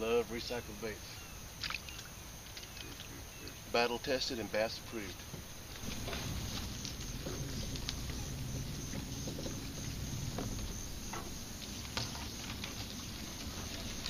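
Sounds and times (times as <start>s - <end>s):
grass stems brushing boat hull: 5.0s - 14.0s
steady low rumble: 5.6s - 14.0s.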